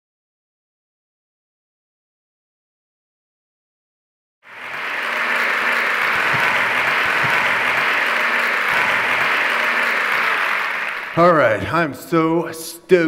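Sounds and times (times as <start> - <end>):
audience applause: 4.5 - 11.8.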